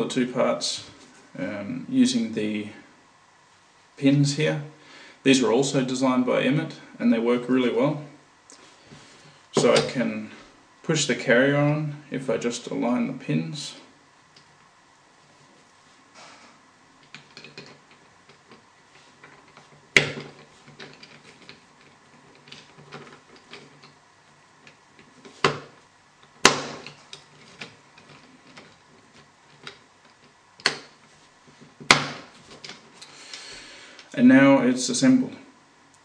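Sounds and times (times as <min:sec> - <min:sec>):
plastic clicks and rattles: 0:17.0 - 0:18.6
sharp loud plastic clicks: 0:26.4 - 0:27.0.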